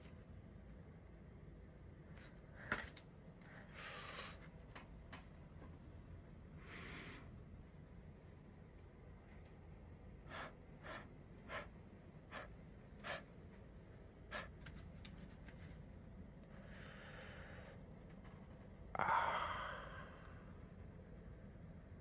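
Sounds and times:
breathy gasp: 0:19.0 - 0:20.5.

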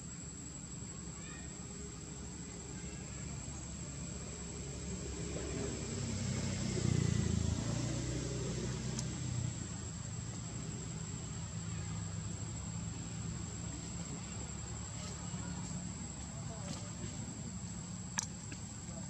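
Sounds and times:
vehicle engine running: 0:01.8 - 0:19.0.

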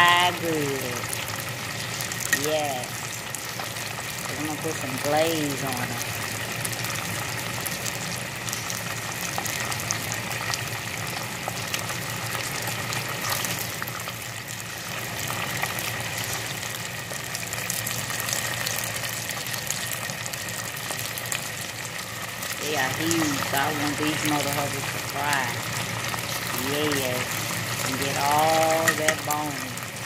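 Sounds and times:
oil bubbling and sizzling: 0:00.0 - 0:30.0.

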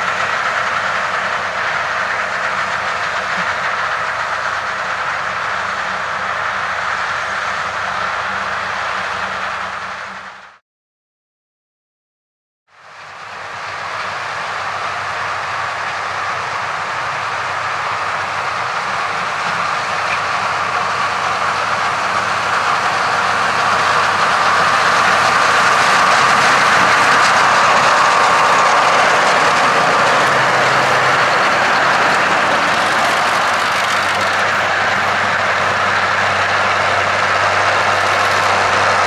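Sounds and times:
tractor diesel engine running: 0:00.0 - 0:10.6, 0:12.8 - 0:39.0
rotary mowers spinning through grass: 0:18.1 - 0:39.0.

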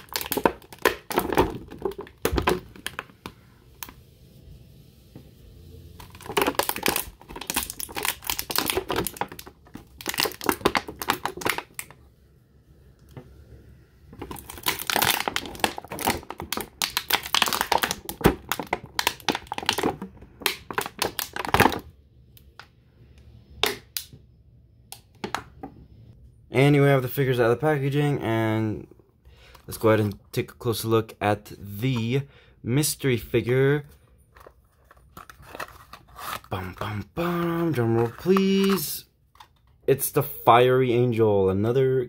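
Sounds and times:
plastic packaging crinkling: 0:00.0 - 0:03.2, 0:06.0 - 0:12.0, 0:14.2 - 0:21.9, 0:34.3 - 0:39.8.

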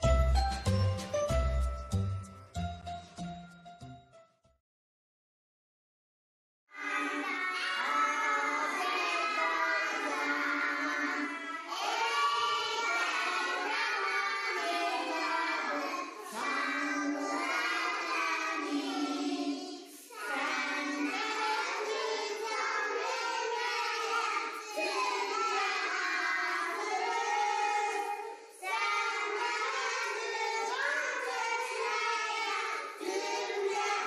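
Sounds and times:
children singing together: 0:06.7 - 0:34.0.

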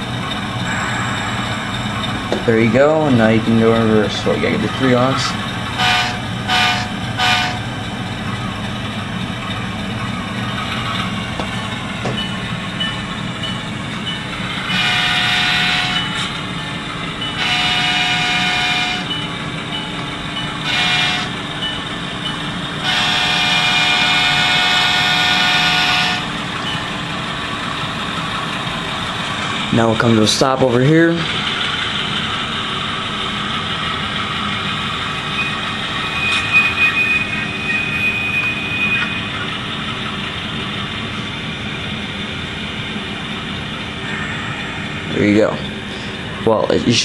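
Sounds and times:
locomotive horn toots: 0:00.0 - 0:07.9, 0:14.5 - 0:16.5, 0:17.3 - 0:19.3, 0:20.6 - 0:21.6, 0:22.8 - 0:26.8, 0:35.3 - 0:39.6
diesel engine running steadily: 0:00.0 - 0:47.0
locomotive horn blasts: 0:00.6 - 0:07.7, 0:14.6 - 0:16.4, 0:17.4 - 0:19.2, 0:20.6 - 0:21.5, 0:22.8 - 0:26.4.

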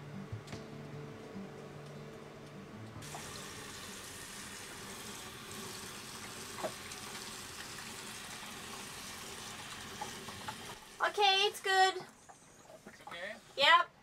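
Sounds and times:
water spraying onto deck: 0:03.0 - 0:11.8.

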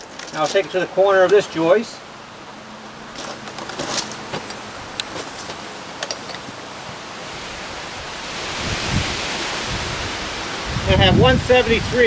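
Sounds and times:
tool belt rattling: 0:00.0 - 0:01.6, 0:03.2 - 0:06.6
footsteps on gravel: 0:00.0 - 0:01.8, 0:03.1 - 0:07.0
steady outdoor hiss: 0:00.0 - 0:12.0.

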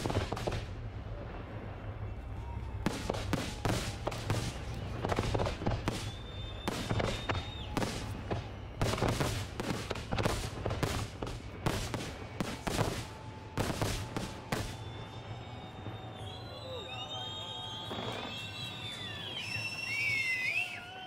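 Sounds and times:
fireworks bangs and crackles: 0:00.0 - 0:21.0
high whistle: 0:05.8 - 0:09.2, 0:12.1 - 0:21.0.

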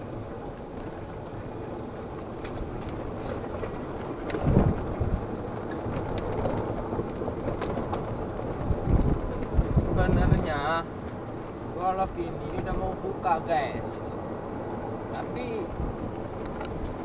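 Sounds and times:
golf cart running: 0:00.0 - 0:17.0
wind on microphone: 0:04.3 - 0:05.4, 0:08.5 - 0:10.6.

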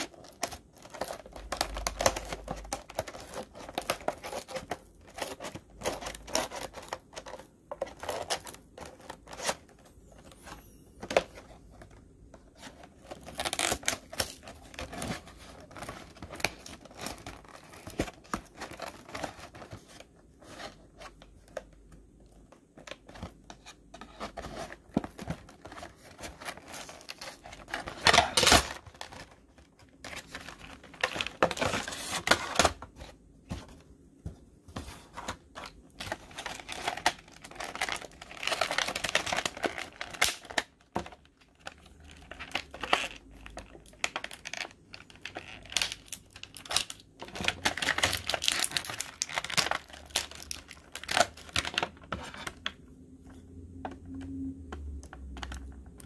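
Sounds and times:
plastic packaging crackling: 0:00.0 - 0:33.0, 0:35.2 - 0:52.8.

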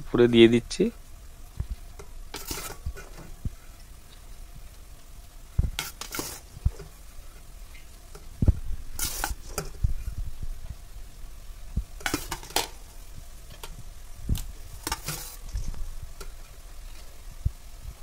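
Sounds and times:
metal spoon scraping rice in pot: 0:02.3 - 0:03.3, 0:05.8 - 0:06.9, 0:08.9 - 0:09.8, 0:12.0 - 0:12.8, 0:14.8 - 0:16.4.

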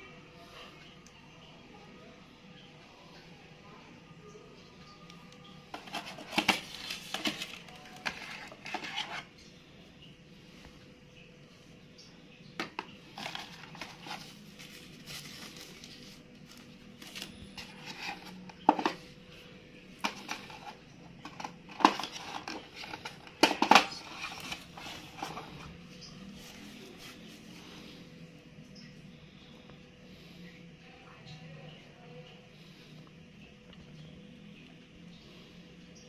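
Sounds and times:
paper wrapping rustling: 0:05.7 - 0:09.3, 0:12.6 - 0:19.1, 0:20.0 - 0:27.7.

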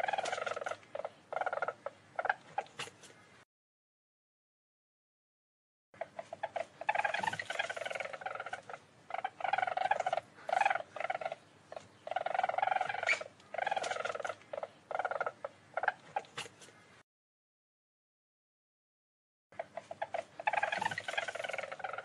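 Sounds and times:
weasel trilling calls: 0:00.0 - 0:03.2, 0:06.0 - 0:17.0, 0:19.6 - 0:22.0
weasel short chirps: 0:12.0 - 0:16.8.

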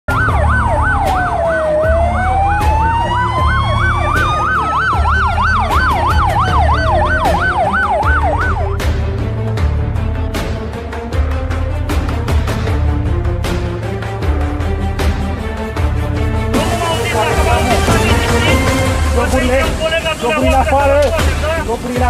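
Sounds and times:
yelp siren: 0:00.1 - 0:08.8
wailing siren: 0:00.1 - 0:09.0, 0:16.6 - 0:20.2
music with low beat: 0:00.1 - 0:22.0.

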